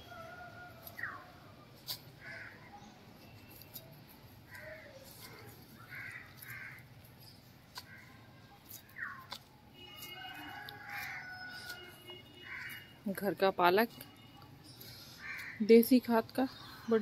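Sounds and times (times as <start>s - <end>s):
crows cawing: 2.2s - 2.6s, 5.8s - 6.9s, 7.8s - 8.2s, 10.2s - 12.9s, 15.0s - 15.6s.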